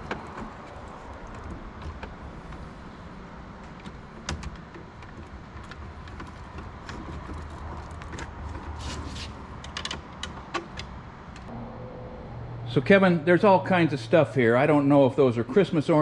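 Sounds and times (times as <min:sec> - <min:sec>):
low steady hum: 0:11.5 - 0:15.9.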